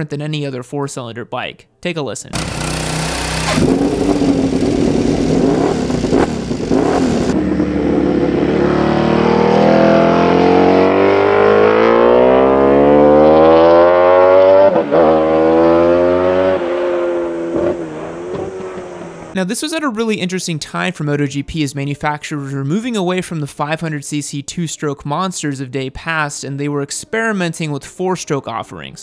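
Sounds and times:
racing motorcycle engine revving: 2.4 - 19.4.

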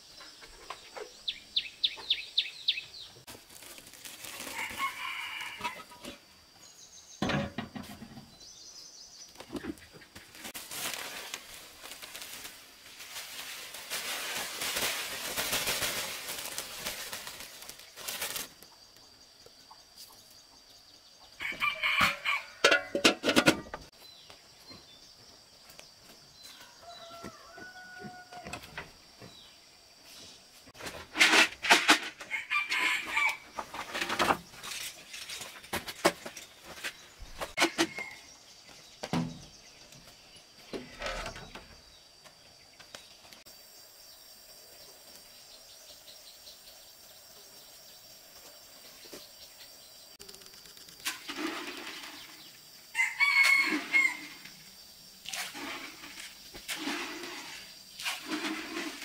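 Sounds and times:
rooster crowing: 4.4 - 5.9, 21.4 - 23.0, 26.6 - 28.6, 32.3 - 33.4, 52.9 - 54.4
chickens calling: 32.2 - 34.8, 53.0 - 54.6.

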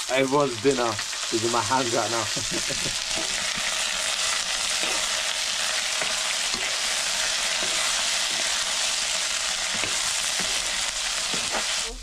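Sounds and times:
potatoes sizzling in frying pan: 0.0 - 12.0
metal ladle scraping pan: 4.6 - 5.2, 5.9 - 8.8, 9.7 - 11.8.

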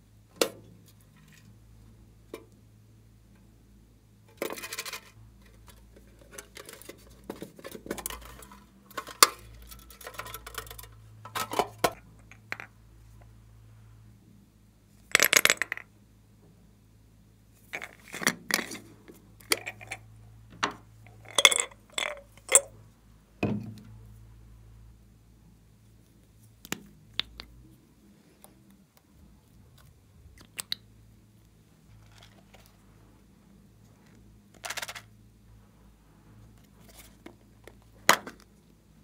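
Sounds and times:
faint steady low hum: 0.0 - 39.0
plastic containers clicking and knocking: 4.3 - 12.7, 15.1 - 15.9.

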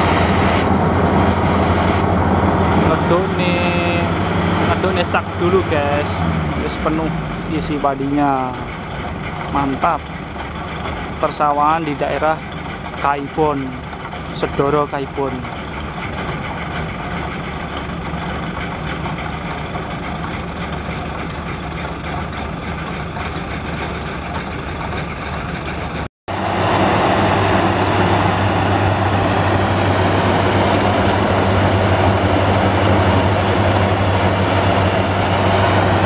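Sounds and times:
combine harvester engine hum: 0.0 - 36.0.

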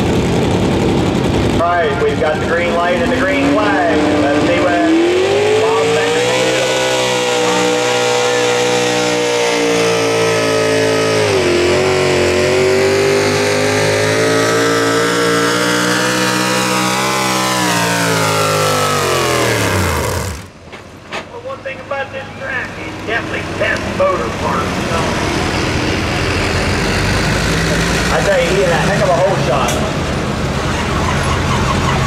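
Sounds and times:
tractor engine running hard: 0.0 - 21.0, 22.9 - 32.0.

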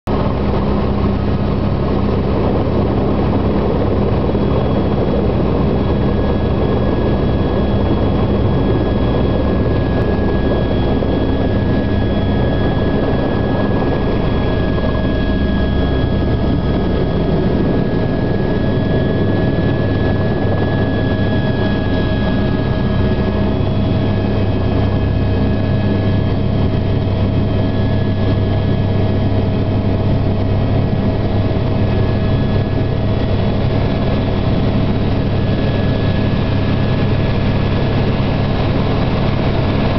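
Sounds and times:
helicopter rotor and turbine drone: 0.1 - 39.9
high turbine whine: 0.1 - 39.9.

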